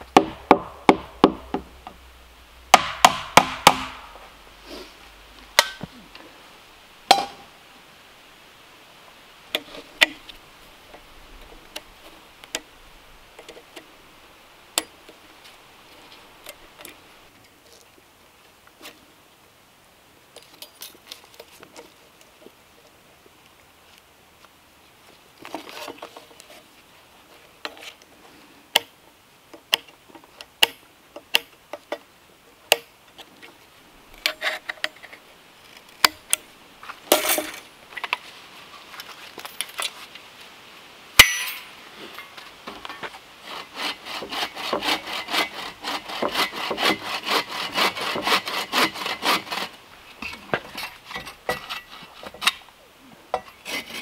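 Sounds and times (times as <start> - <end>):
bow saw cutting wood: 43.4 - 49.8.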